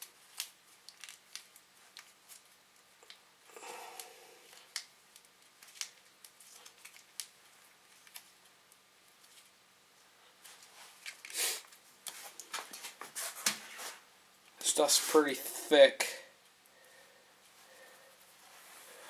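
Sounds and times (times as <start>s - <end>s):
packet rustle: 0.1s - 2.5s, 4.5s - 8.4s.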